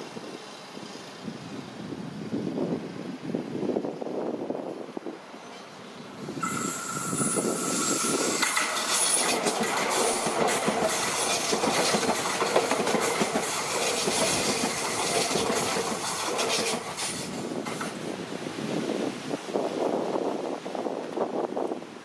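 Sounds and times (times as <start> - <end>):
train wheels rumbling over rails: 5.7 - 18.2
high electric whine: 6.4 - 9.4.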